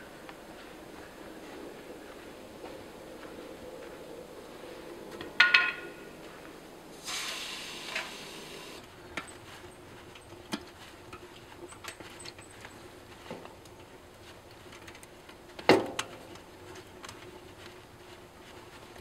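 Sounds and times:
rustling of canvas tent: 6.2 - 19.0.

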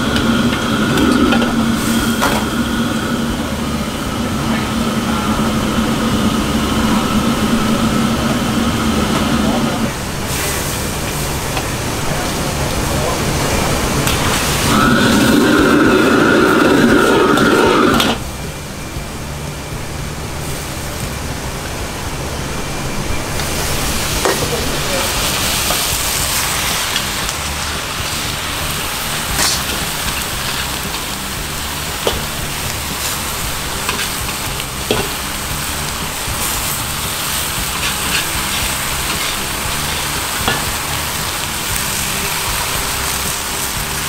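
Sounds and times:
claypot food sizzling: 0.0 - 44.0
wok burner roaring: 0.0 - 44.0.

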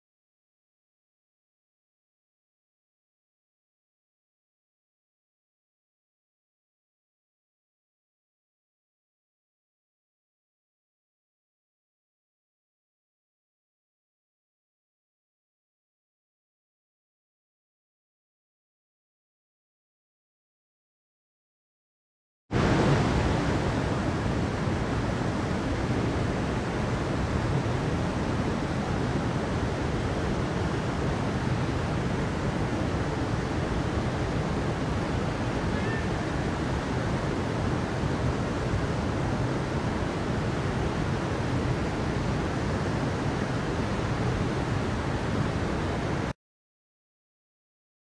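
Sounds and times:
water rushing: 22.5 - 46.3.

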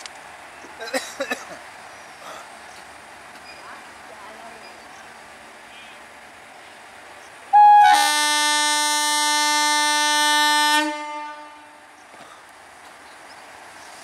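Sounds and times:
low rumble of train: 0.0 - 14.0
locomotive horn blast: 7.6 - 12.0.

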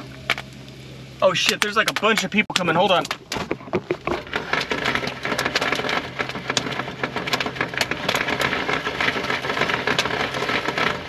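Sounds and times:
popcorn popping: 1.4 - 11.0.

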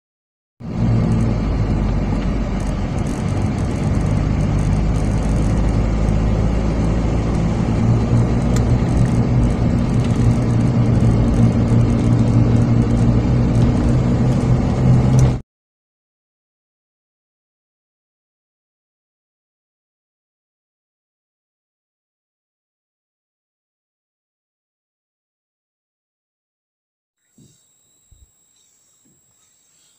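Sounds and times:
car engine and tyre noise: 0.6 - 15.4.

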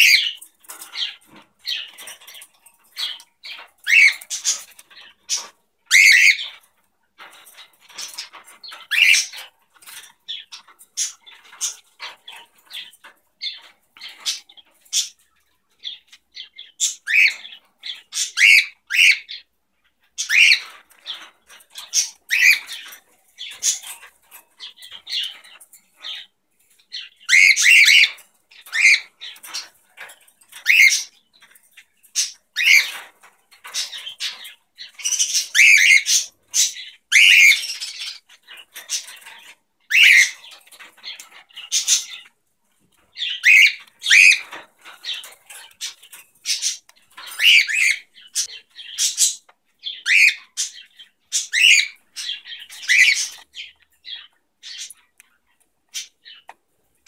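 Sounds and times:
cockatiel chirps and squawks: 3.0 - 6.6, 7.9 - 12.8, 15.8 - 19.5, 20.2 - 24.0, 26.9 - 29.7, 32.1 - 33.1, 33.7 - 42.3, 43.2 - 55.0.

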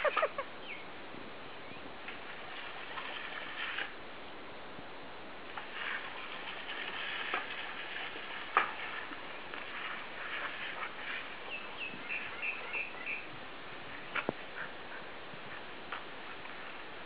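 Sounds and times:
hose spray hissing and splashing: 2.2 - 4.0, 5.6 - 11.6.

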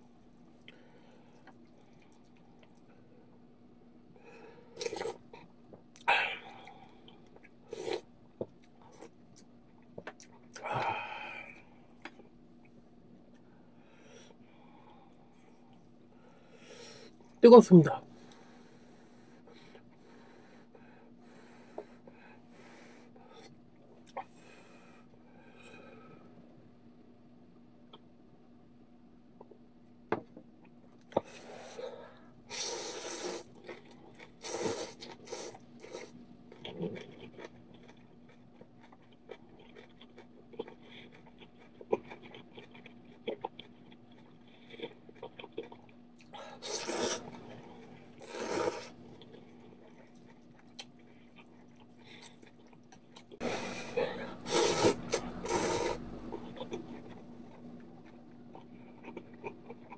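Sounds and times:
steady low hum: 0.0 - 59.9
chewing: 0.6 - 3.0, 32.5 - 59.9
person slurping noodles: 32.5 - 33.5, 34.4 - 36.1, 46.6 - 49.0, 53.4 - 56.0.

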